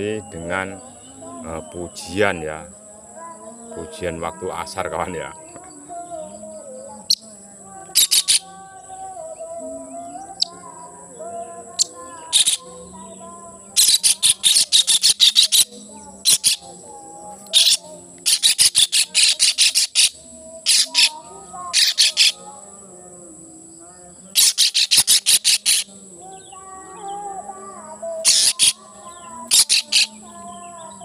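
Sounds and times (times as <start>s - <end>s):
voice chanting over loudspeaker: 0.0s - 31.0s
bird harsh rattling calls: 8.0s - 8.4s, 11.8s - 12.6s, 13.8s - 16.6s, 17.5s - 22.4s, 24.4s - 25.9s, 28.2s - 28.8s, 29.5s - 30.2s.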